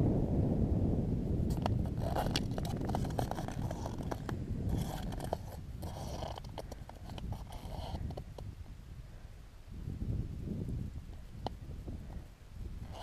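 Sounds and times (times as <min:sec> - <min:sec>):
wind on microphone: 0:00.0 - 0:13.0
footsteps crunching in snow: 0:01.5 - 0:08.2.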